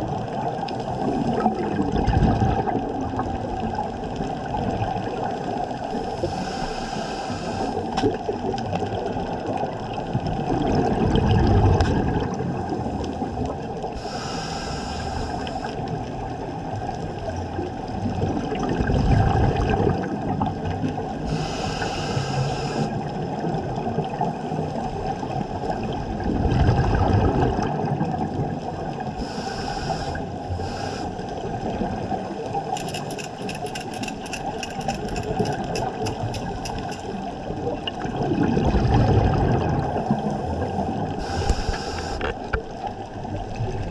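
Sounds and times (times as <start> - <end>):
exhaled bubbles rushing: 0.0 - 5.9, 7.8 - 14.0, 15.8 - 21.2, 22.9 - 29.2, 34.5 - 41.6
regulator air hissing: 6.3 - 7.8, 14.0 - 15.7, 21.3 - 22.9, 29.2 - 31.2, 41.2 - 42.2
sharp clicks: 32.7 - 37.1.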